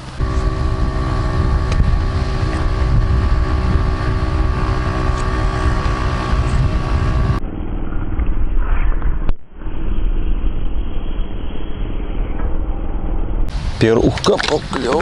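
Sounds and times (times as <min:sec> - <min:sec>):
outboard engine running: 0:00.0 - 0:07.4
wind buffeting microphone: 0:00.0 - 0:07.4.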